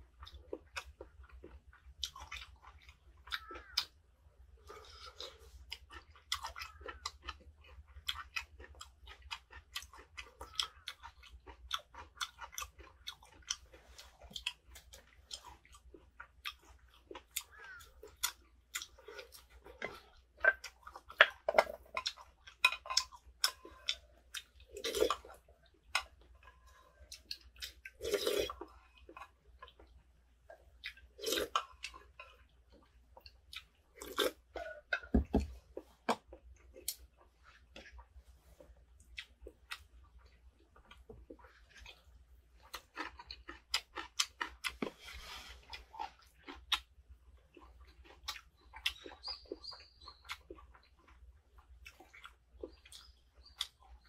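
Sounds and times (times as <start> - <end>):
wet mouth chewing clicks: 42.6 - 45.0, 45.7 - 46.9, 47.5 - 54.0.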